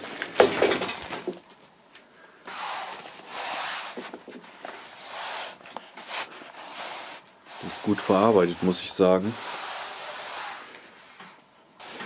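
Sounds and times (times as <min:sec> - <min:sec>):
plastic wrapping rustling: 0:02.8 - 0:11.2.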